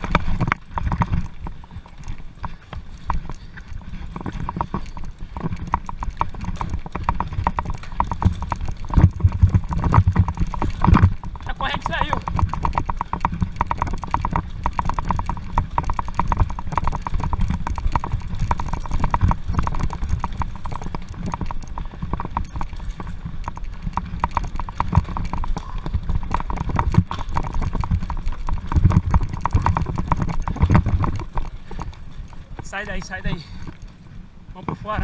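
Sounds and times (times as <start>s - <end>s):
bike clattering over sleepers: 0.0s - 35.0s.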